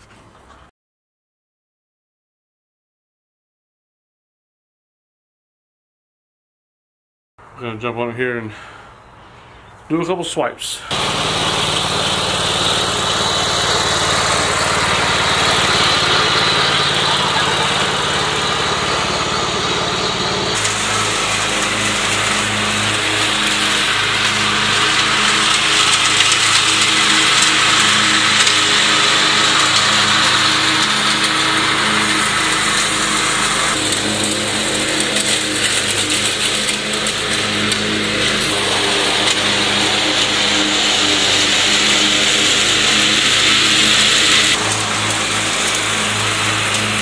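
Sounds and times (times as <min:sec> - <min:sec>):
lawn mower engine running: 0:10.8 - 0:47.0.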